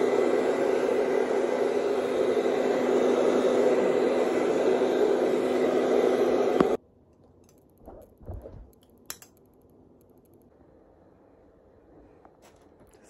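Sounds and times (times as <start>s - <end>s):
hair dryer blowing: 0.0s - 6.8s.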